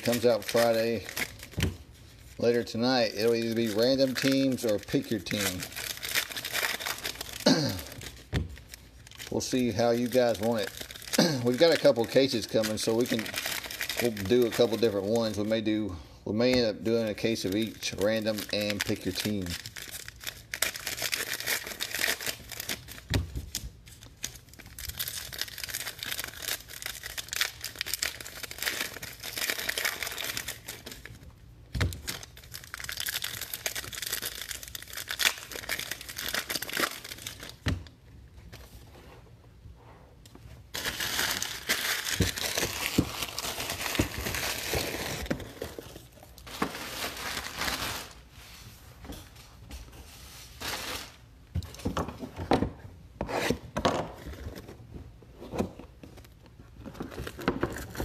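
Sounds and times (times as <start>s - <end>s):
foil wrappers tearing and crinkling: 0.0s - 1.6s, 2.2s - 15.7s, 16.9s - 31.2s, 31.9s - 37.6s, 40.7s - 48.2s, 50.6s - 51.3s, 57.0s - 58.0s.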